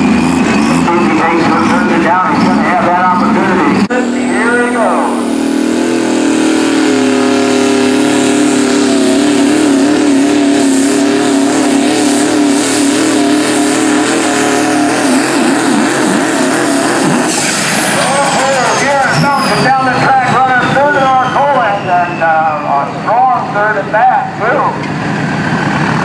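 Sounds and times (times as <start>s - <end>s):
diesel engine at full throttle: 0.0s - 26.0s.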